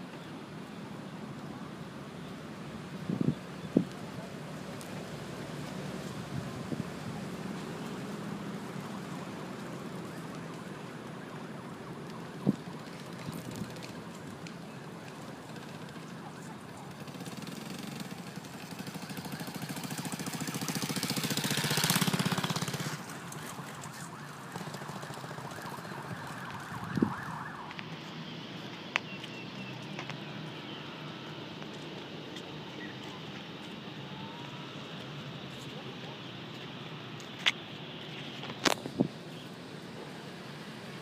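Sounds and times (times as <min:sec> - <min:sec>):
outdoor background noise: 0:00.0 - 0:41.0
motor vehicle passing: 0:15.8 - 0:37.0.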